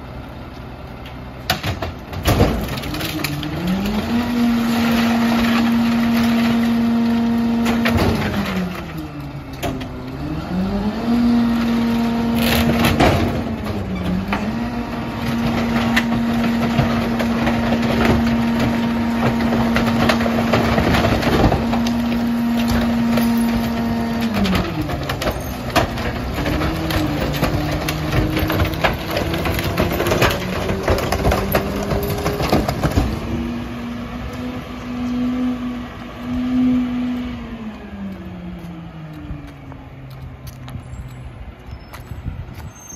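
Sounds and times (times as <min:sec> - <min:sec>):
garbage truck engine: 0:00.0 - 0:42.9
clanks and knocks from hopper: 0:12.3 - 0:33.3.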